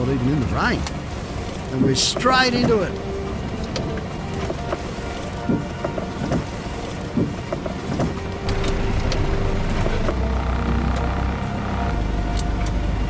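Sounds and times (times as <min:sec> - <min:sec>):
truck engine at low revs: 0:00.0 - 0:13.0
knocks and clicks from truck: 0:03.6 - 0:10.2.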